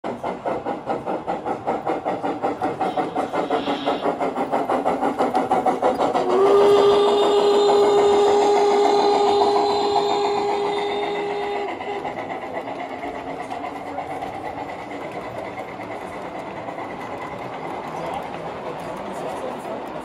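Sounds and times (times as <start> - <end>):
model steam locomotive chuffing: 0.0 - 20.0
steam whistle blast: 6.2 - 12.0.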